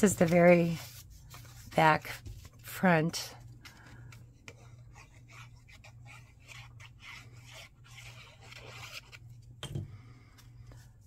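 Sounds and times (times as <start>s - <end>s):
paper scraping and rustling: 0.0s - 2.8s.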